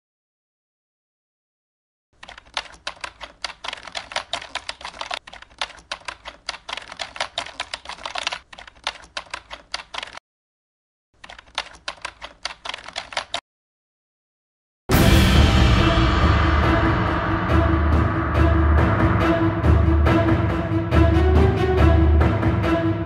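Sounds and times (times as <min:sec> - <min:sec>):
keyboard typing clicks: 0:02.2 - 0:10.2, 0:11.2 - 0:13.4.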